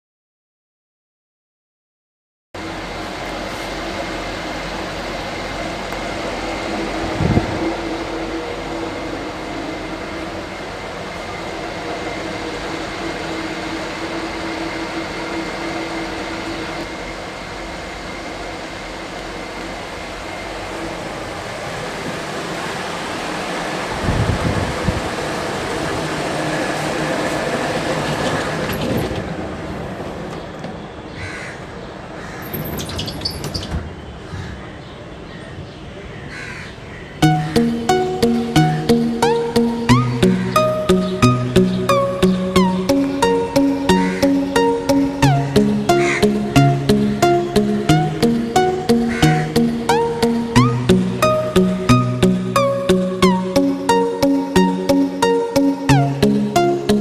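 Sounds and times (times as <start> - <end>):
mechanical hum: 2.6 - 57.0
background traffic: 19.1 - 57.0
crows cawing: 31.1 - 32.6, 34.3 - 37.2.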